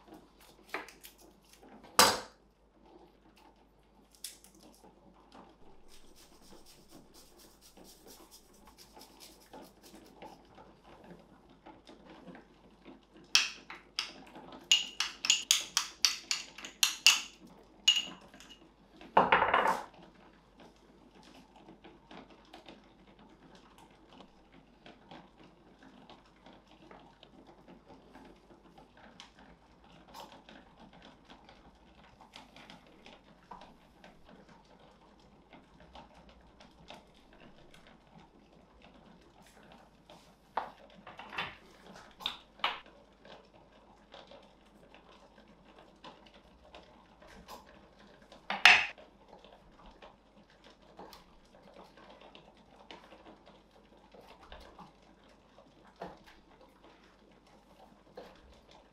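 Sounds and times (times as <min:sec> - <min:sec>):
butter spread on bread: 0:05.6 - 0:11.2
utensil scraping bowl: 0:05.8 - 0:10.5, 0:13.4 - 0:18.6
utensil clinking on glass bowl: 0:13.4 - 0:18.6, 0:48.5 - 0:48.9.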